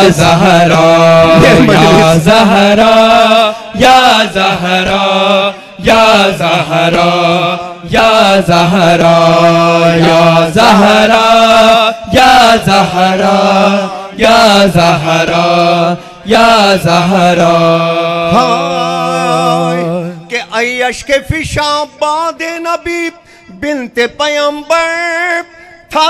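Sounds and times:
men chanting: 0:00.0 - 0:20.6.

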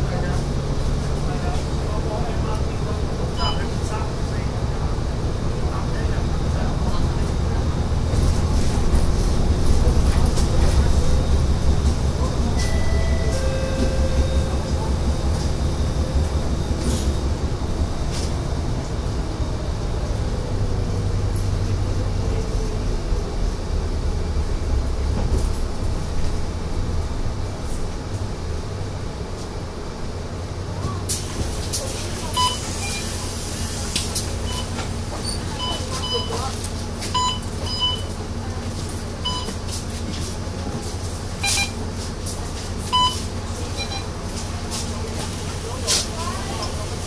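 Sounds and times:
bus engine and road rumble: 0:00.0 - 0:47.0.

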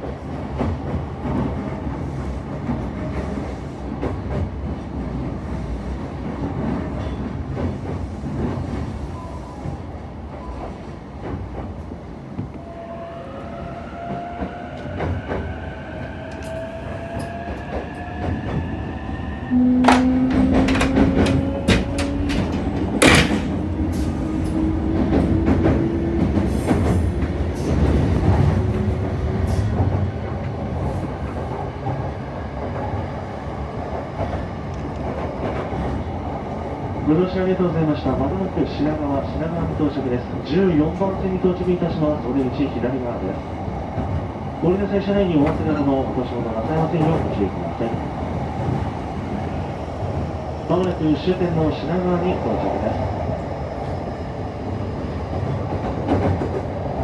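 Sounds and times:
rail clicks: 0:00.0 - 0:12.7, 0:14.0 - 0:33.1, 0:33.9 - 0:36.6, 0:37.5 - 0:54.0, 0:55.2 - 0:57.0
rising train whine: 0:00.0 - 0:40.5, 0:41.1 - 0:57.0
train rumbling: 0:00.0 - 0:57.0.

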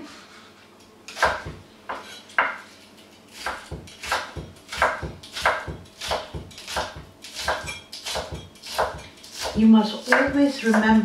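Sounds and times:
cleaver chopping on wooden board: 0:03.4 - 0:11.0.

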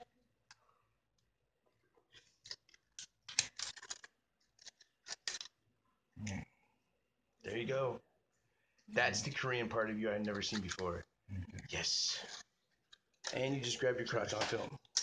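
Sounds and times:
scissors cutting plastic: 0:02.4 - 0:05.5.

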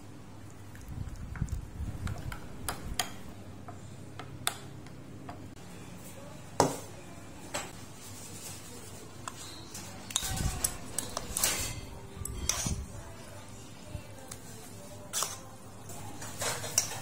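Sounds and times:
metal spoon stirring in bowl: 0:08.9 - 0:17.0.

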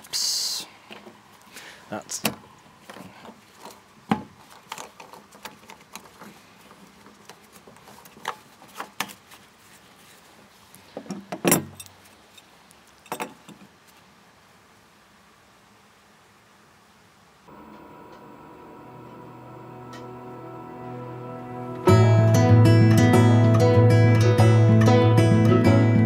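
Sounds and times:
plastic pipe fitting clicking and scraping: 0:04.5 - 0:09.2.

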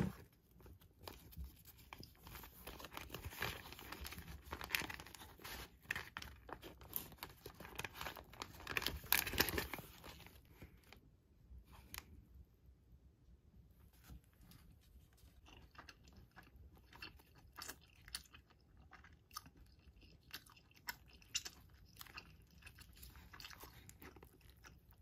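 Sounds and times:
paper bag crinkling: 0:01.0 - 0:10.6.

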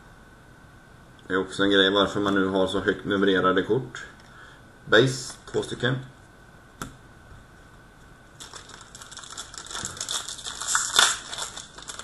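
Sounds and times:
plastic wrapper crinkling: 0:08.3 - 0:12.0.

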